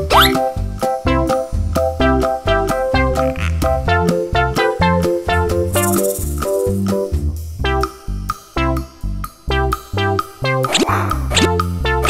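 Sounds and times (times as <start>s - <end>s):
bouncy instrumental music: 0.0s - 10.7s, 11.4s - 12.0s.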